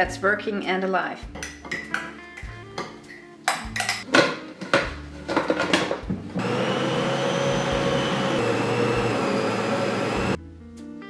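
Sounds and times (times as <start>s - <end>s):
stand mixer motor whining: 6.4s - 10.4s.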